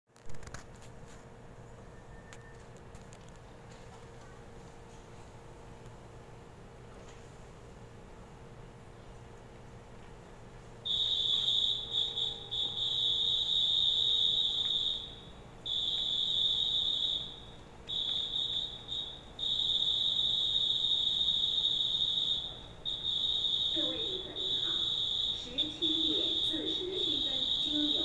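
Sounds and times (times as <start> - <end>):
high-pitched whistle blasts: 10.9 - 28.0.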